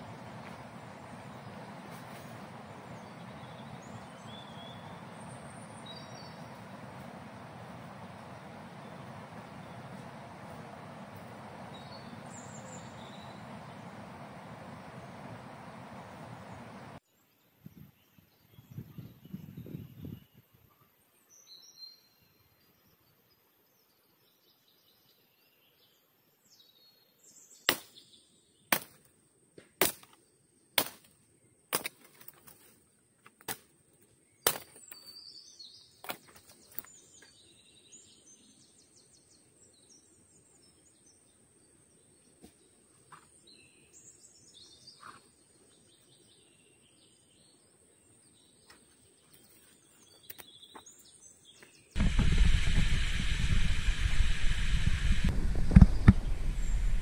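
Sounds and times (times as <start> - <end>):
bird chirps: 0.0 - 16.8
blade chopping wood: 28.7 - 29.0, 29.8 - 30.2, 30.8 - 31.1, 31.7 - 32.5, 34.4 - 35.0.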